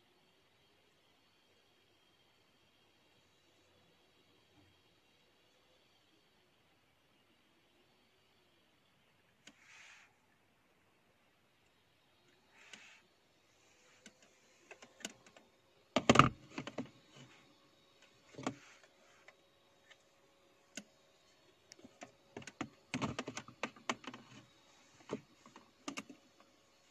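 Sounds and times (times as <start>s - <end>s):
hard plastic clicks and knocks: 16.0s - 17.0s, 18.3s - 18.6s, 21.8s - 24.4s.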